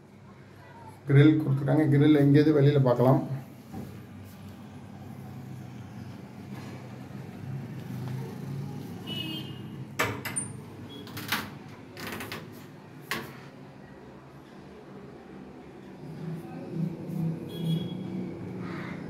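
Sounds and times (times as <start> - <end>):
door clicks and knocks: 10.0 - 13.4.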